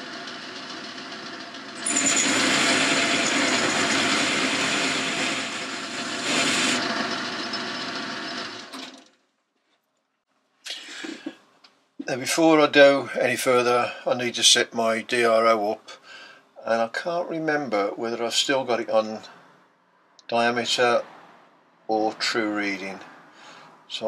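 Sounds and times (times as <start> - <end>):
lathe whining: 0.0 - 9.2
tool bit cutting metal: 1.8 - 8.4.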